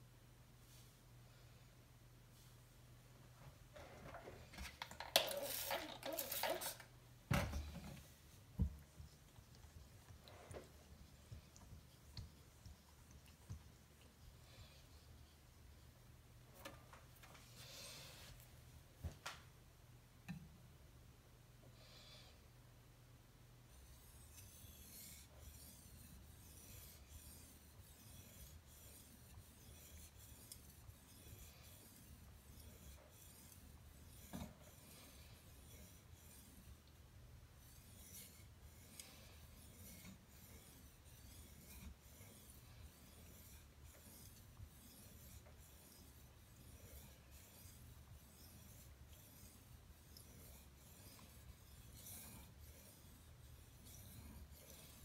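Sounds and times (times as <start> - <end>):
knife scraping on whetstone: 23.9 - 36.9, 37.6 - 55.0.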